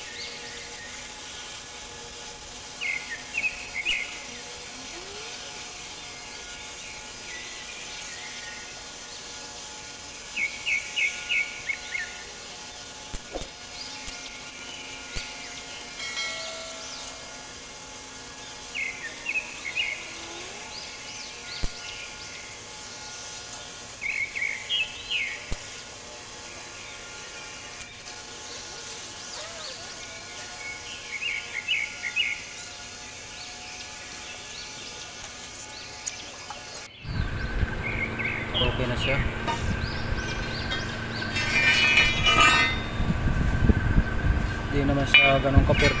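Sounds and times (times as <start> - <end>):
gas torch flame hissing: 0.0 - 33.4
small birds chirping: 0.0 - 46.0.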